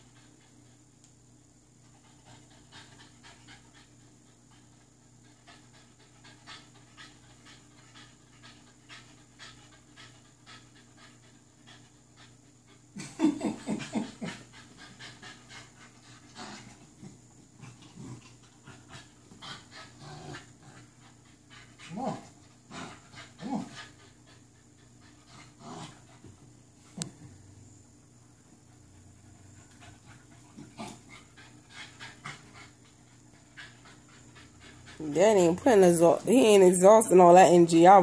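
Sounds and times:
puppy panting: 1.8s - 27.2s, 28.5s - 38.0s
puppy growling: 16.3s - 20.9s, 21.8s - 23.9s, 25.2s - 26.1s, 30.4s - 32.8s.

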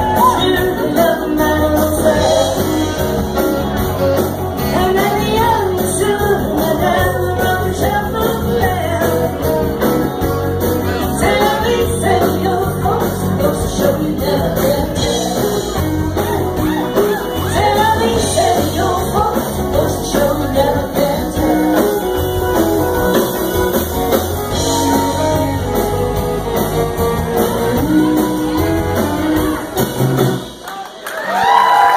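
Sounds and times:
person singing: 0.0s - 10.0s, 10.8s - 23.2s
drums: 0.0s - 31.9s
electric guitar: 0.0s - 31.9s.

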